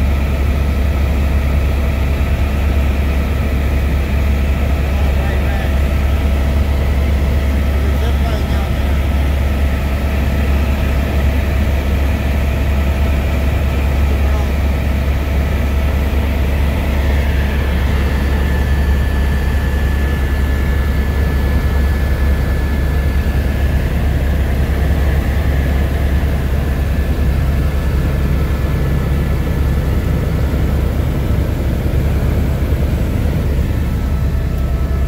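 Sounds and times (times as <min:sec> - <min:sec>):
helicopter engine and rotor drone: 0:00.0 - 0:35.0.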